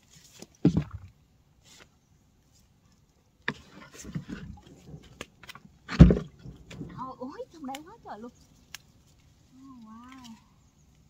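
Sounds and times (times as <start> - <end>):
leaves and stems rustling: 1.6 - 11.0
thump: 5.9 - 7.0.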